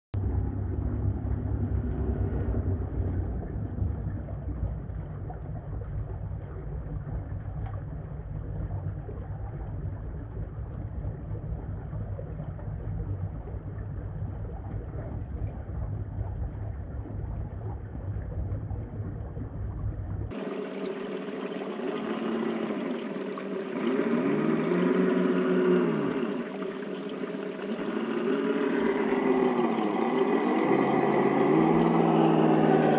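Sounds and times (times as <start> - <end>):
water rushing over rock: 20.3 - 32.9.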